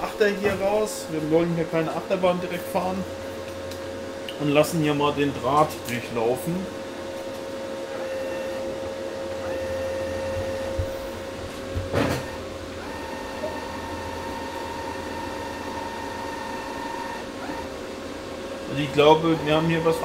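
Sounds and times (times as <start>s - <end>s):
wire feed motor humming: 0.0s - 20.0s.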